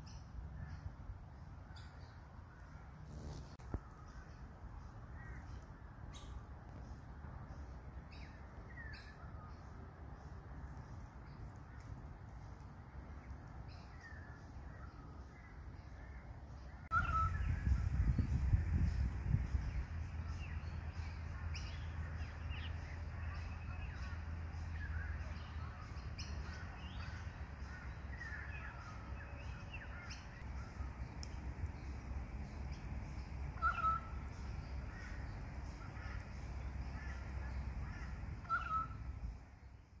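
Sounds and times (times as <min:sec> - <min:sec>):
steady low rumble: 0:16.7 - 0:27.7
short bird calls: 0:33.6 - 0:34.2, 0:36.9 - 0:39.1.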